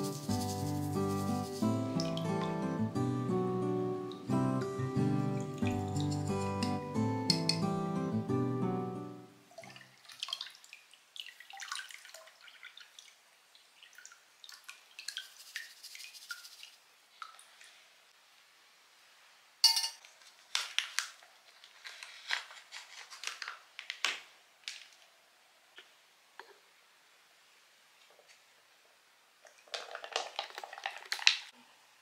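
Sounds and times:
water dripping into plastic basin: 0:02.0 - 0:02.6, 0:09.5 - 0:15.2
plastic pouch crinkling: 0:20.2 - 0:25.0, 0:29.6 - 0:31.5.

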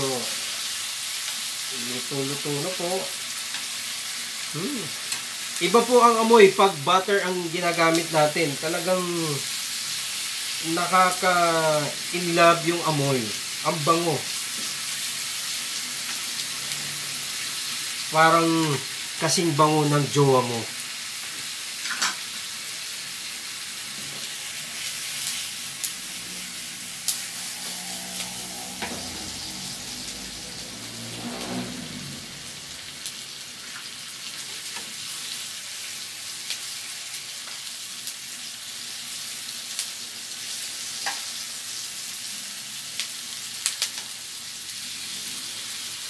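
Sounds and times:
pork sizzling in a pan: 0:00.0 - 0:46.0.

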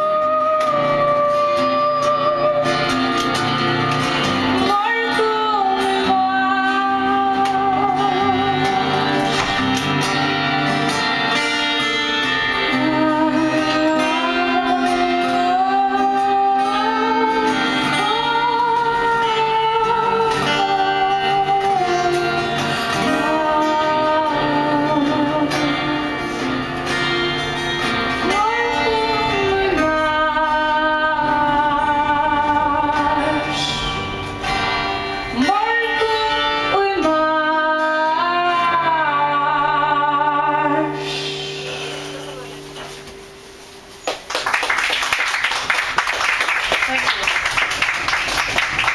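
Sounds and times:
woman singing: 0:00.0 - 0:03.5, 0:04.4 - 0:09.4, 0:12.2 - 0:26.6, 0:28.1 - 0:34.0, 0:35.2 - 0:41.4
acoustic guitar: 0:00.0 - 0:48.9.

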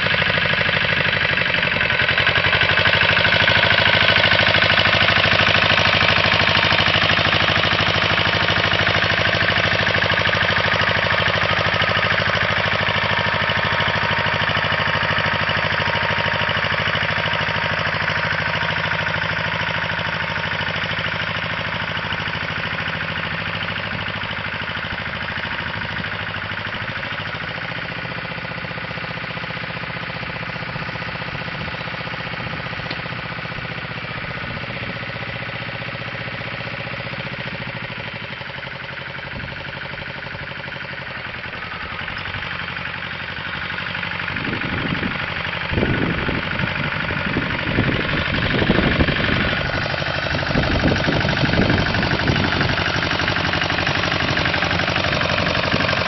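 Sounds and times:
walking tractor engine running: 0:00.0 - 0:56.0.

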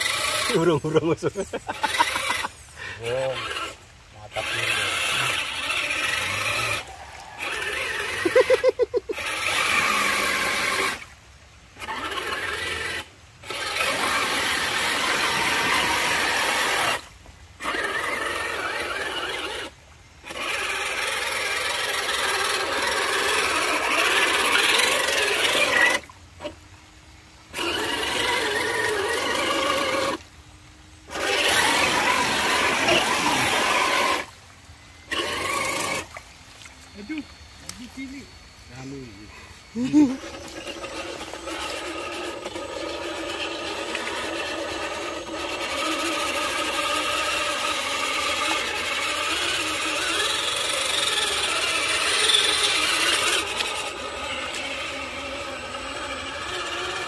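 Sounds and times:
toy car motor whining and grinding: 0:00.0 - 0:26.6, 0:27.4 - 0:30.4, 0:31.0 - 0:36.2, 0:38.8 - 0:57.0
loud fluttering buzz: 0:00.0 - 0:57.0.

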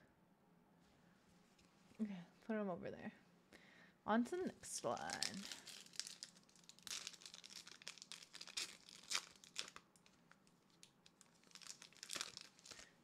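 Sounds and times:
foil wrapper crinkling: 0:04.8 - 0:13.0.

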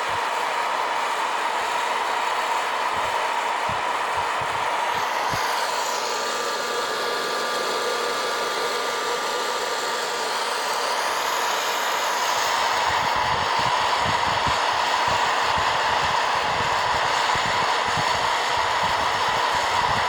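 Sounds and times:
hot air popper fan blowing: 0:00.0 - 0:20.0.

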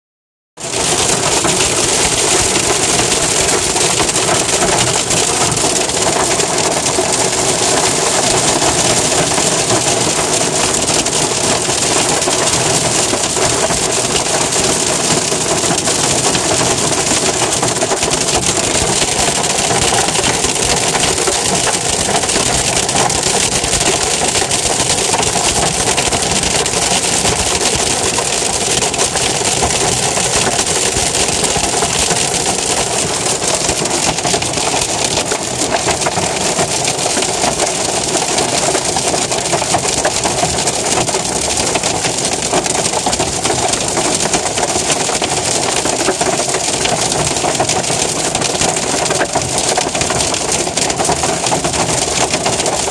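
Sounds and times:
hail and rain on car roof: 0:00.6 - 0:52.9.

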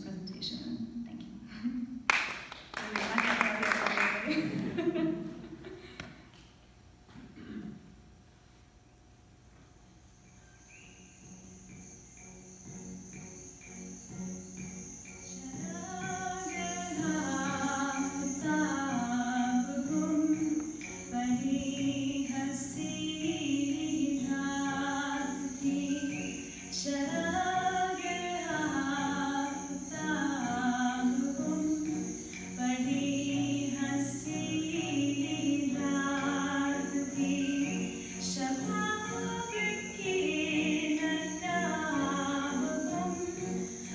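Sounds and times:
woman singing slow melody: 0:15.3 - 0:43.9.

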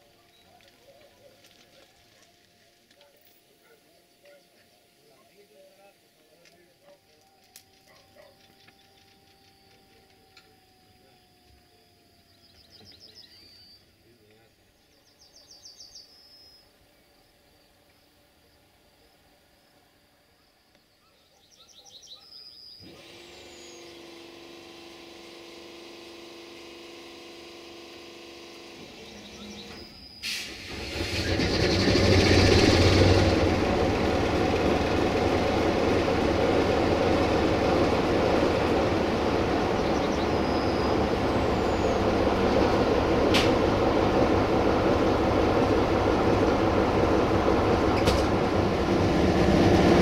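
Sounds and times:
diesel engine starting and running: 0:22.8 - 0:50.0
machine hum: 0:31.0 - 0:50.0.

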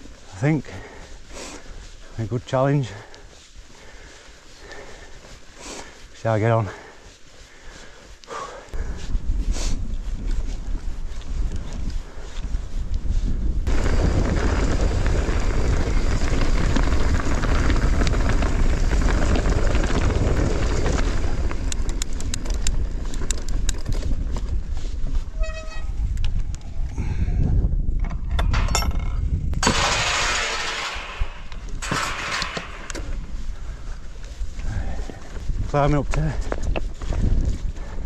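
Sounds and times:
wind buffeting microphone: 0:08.7 - 0:30.2, 0:30.8 - 0:38.0
tyres crunching on stones: 0:13.7 - 0:24.8, 0:29.6 - 0:33.4
bike clicks and rattles: 0:13.7 - 0:27.0, 0:27.8 - 0:38.0.

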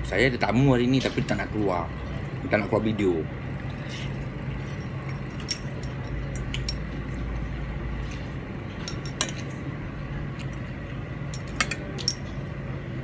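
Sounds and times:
steady low hum: 0:00.0 - 0:13.0
clinks against a plate: 0:11.3 - 0:12.4.

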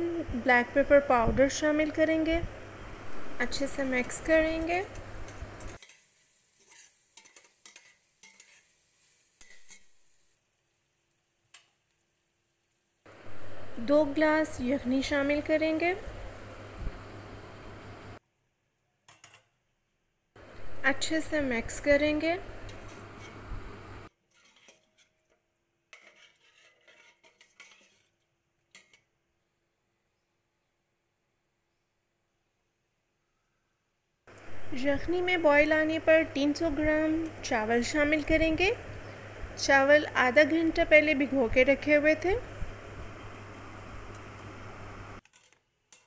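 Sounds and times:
steady hiss: 0:01.1 - 0:18.2, 0:20.4 - 0:24.1, 0:34.3 - 0:45.2
spatula scraping a steel pot: 0:05.2 - 0:10.2, 0:22.7 - 0:23.5, 0:24.2 - 0:29.0.

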